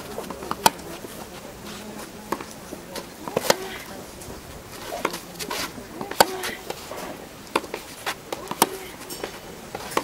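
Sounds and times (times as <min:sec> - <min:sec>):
tennis ball bouncing: 0:00.1 - 0:01.0, 0:02.2 - 0:03.9, 0:04.7 - 0:06.8, 0:07.5 - 0:10.0
tennis racket hitting ball: 0:00.2 - 0:00.9, 0:02.3 - 0:03.9, 0:04.8 - 0:10.0.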